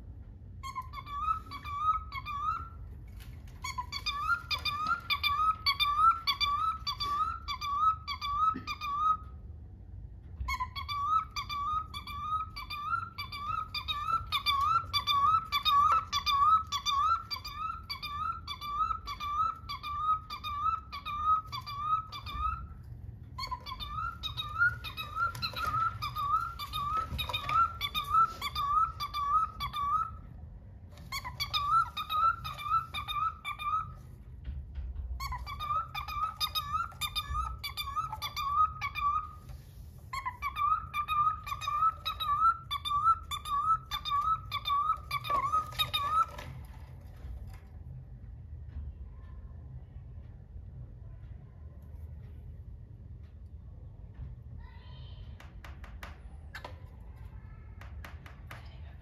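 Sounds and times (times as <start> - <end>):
cockatiel chirping: 0.5 - 9.4, 10.4 - 30.4, 31.0 - 34.2, 35.0 - 46.8.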